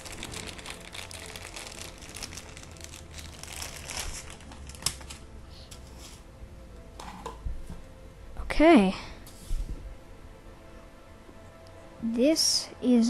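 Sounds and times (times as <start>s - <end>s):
plastic wrapping crinkling: 0.0s - 6.0s.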